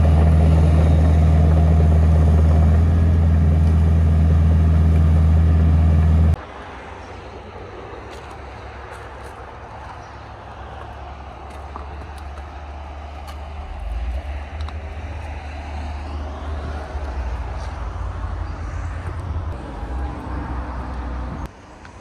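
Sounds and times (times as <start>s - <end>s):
diesel engine idling: 0.0s - 6.4s.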